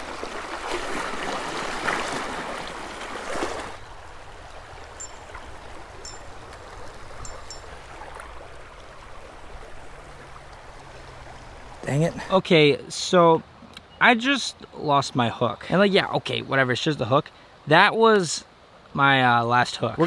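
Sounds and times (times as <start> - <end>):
creek water running over rocks: 0.0 - 20.0.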